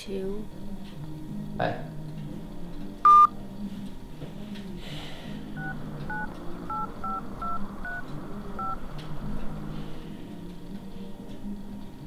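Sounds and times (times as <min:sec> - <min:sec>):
phone keypad dual-tone beeps: 0:03.1 - 0:03.3, 0:05.6 - 0:08.0.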